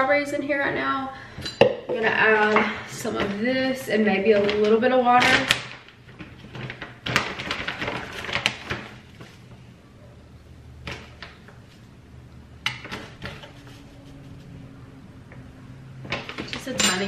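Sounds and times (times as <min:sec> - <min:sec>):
plastic pouch crinkling: 0:05.3 - 0:09.4.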